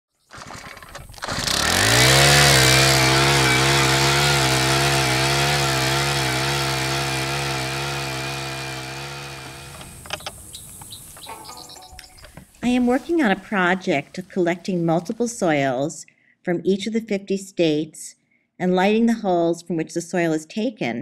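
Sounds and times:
small engine revving: 0.2 - 15.2.

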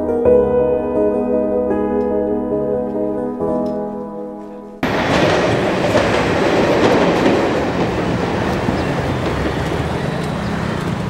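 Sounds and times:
music: 0.0 - 4.9
train passing on tracks: 4.8 - 11.0.

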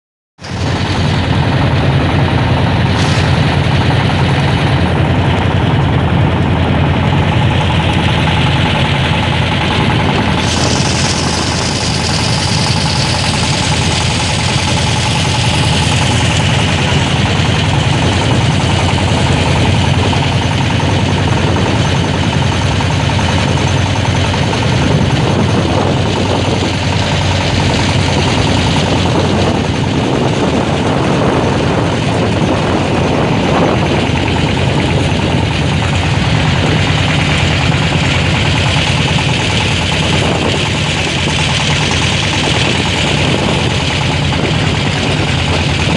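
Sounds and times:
motorboat engine chugging: 0.4 - 45.9
wind: 0.4 - 45.9
water hissing: 2.9 - 4.0, 9.8 - 19.4.

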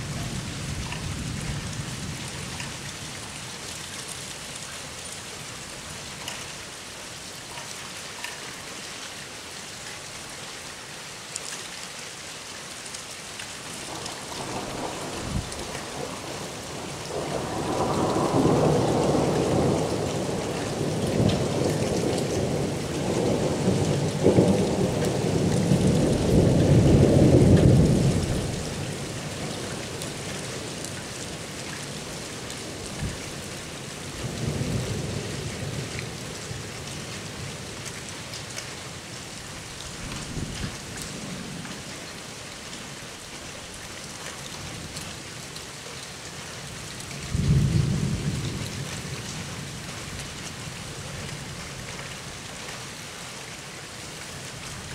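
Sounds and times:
steady rain: 0.0 - 54.9
thunder rumbling: 13.9 - 29.0, 47.3 - 48.8.

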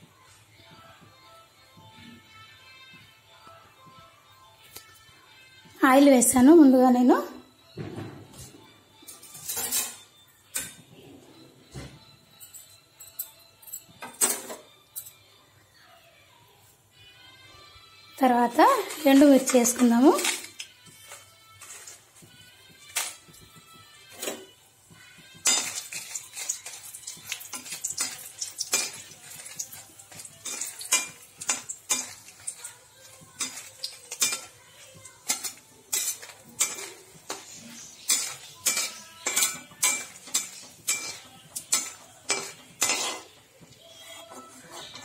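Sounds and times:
oil sizzling: 24.8 - 45.0
ladle scraping a wok: 35.2 - 43.4, 44.0 - 45.0.

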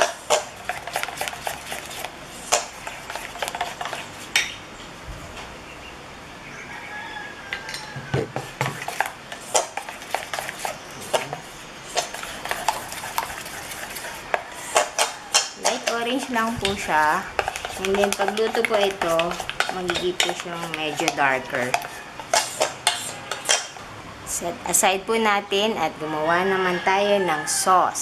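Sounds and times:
utensil stirring batter in metal bowl: 0.0 - 4.5, 8.3 - 23.8.

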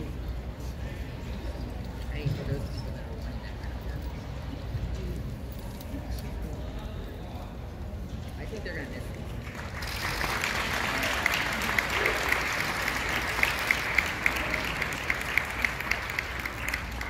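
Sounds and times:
audience applauding: 9.4 - 17.0.

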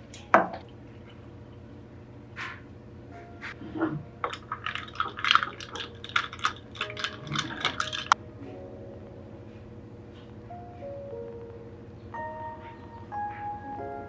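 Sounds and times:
soft background music: 3.0 - 4.2, 6.9 - 14.0
metal spoon clinking in glass jar: 4.3 - 8.2.

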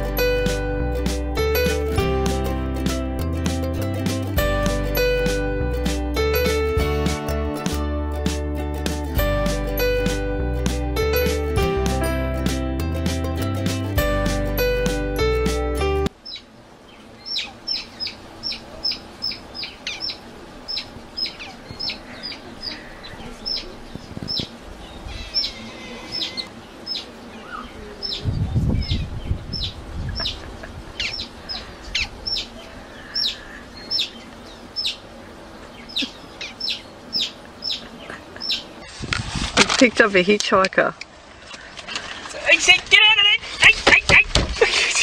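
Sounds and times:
otter chirping: 16.2 - 38.9.

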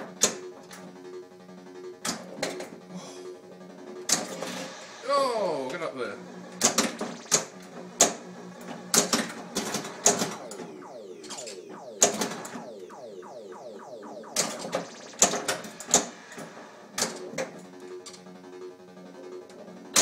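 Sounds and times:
electronic sound effects sweeping down: 6.6 - 19.1.

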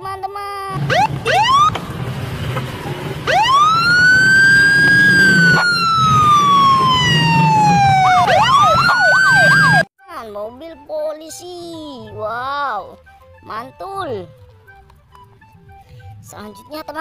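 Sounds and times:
police siren wailing and yelping: 0.8 - 2.0, 2.9 - 9.9.

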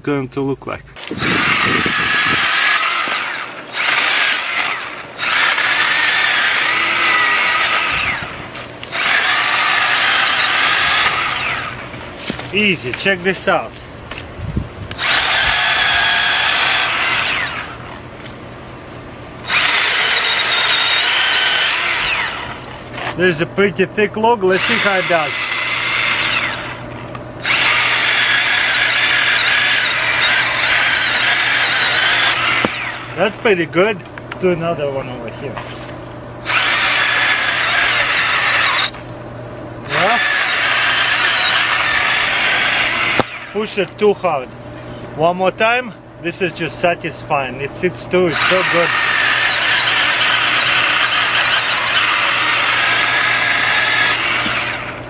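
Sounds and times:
mini chainsaw whining: 1.0 - 13.6, 14.9 - 18.0, 19.4 - 23.2, 24.4 - 26.8, 27.4 - 33.7, 36.4 - 39.0, 39.8 - 44.1, 48.2 - 55.0.

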